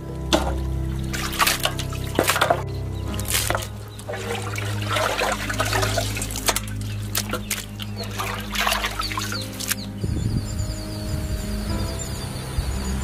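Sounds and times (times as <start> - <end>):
water splashing in metal basin: 0.0 - 10.0.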